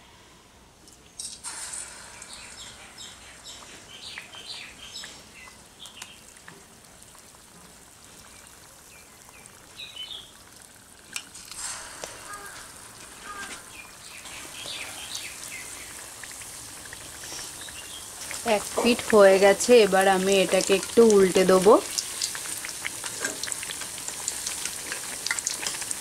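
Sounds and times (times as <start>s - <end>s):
cutlets deep-frying in hot oil: 0.9s - 26.0s
oil crackling: 1.2s - 26.0s.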